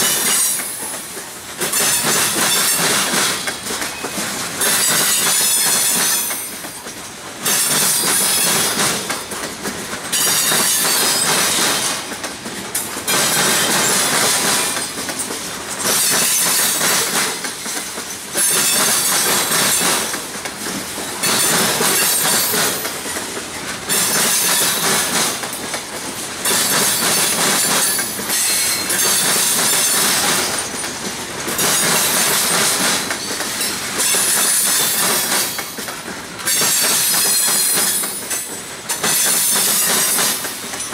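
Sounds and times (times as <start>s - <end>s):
train wheels banging over crossing: 0.0s - 40.9s.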